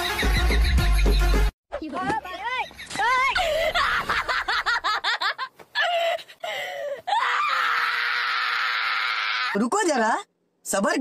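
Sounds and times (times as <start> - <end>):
people laughing and shrieking: 3.1 - 6.1, 7.1 - 9.6.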